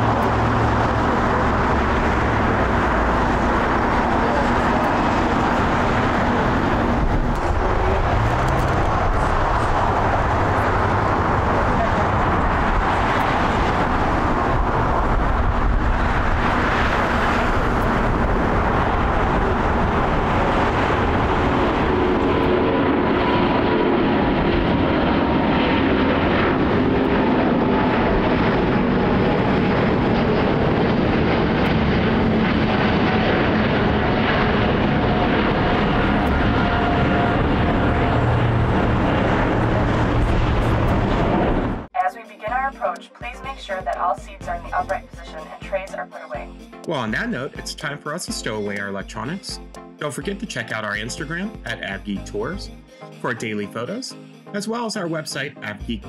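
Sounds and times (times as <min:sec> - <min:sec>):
jet engines roaring: 0:00.0 - 0:41.9.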